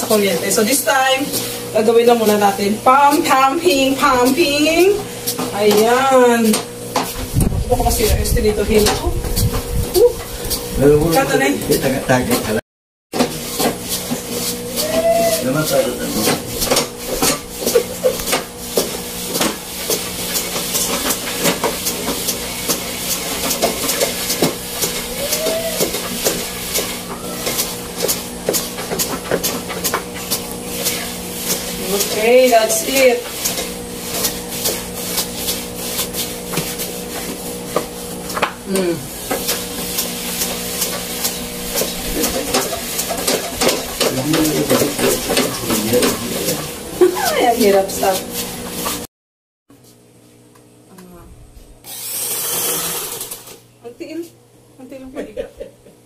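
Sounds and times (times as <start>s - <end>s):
treadle clicking: 39.3s - 46.7s.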